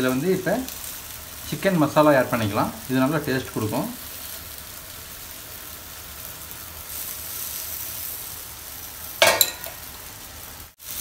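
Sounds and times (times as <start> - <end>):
gravy sizzling in a pan: 0.0 - 11.0.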